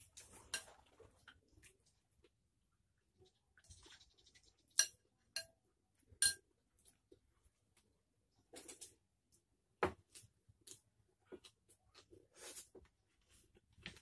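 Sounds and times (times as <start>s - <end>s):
soft rustle of food: 0.0s - 14.0s
metal spoon clinking on ceramic: 4.8s - 5.6s, 6.2s - 6.4s.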